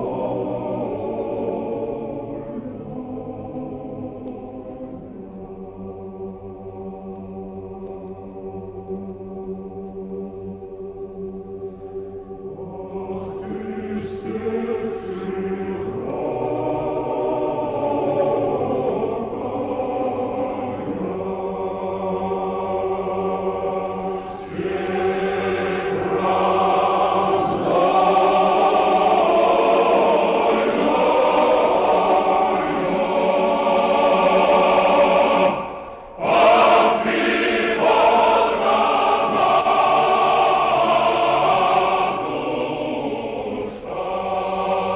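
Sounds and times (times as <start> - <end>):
choir singing chant-like melody: 0.0 - 44.9.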